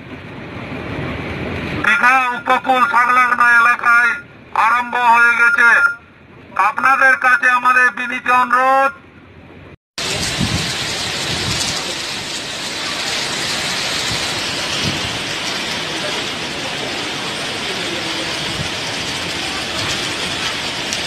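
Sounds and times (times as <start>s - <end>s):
wind gusts: 9.3s - 21.0s
heavy rain downpour: 10.0s - 21.0s.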